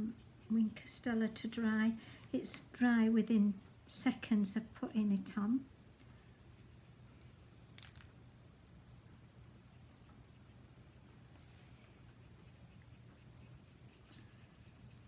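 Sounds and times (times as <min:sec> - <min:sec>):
low room hum: 0:00.0 - 0:15.0
brush pen strokes on cardstock: 0:12.1 - 0:15.0.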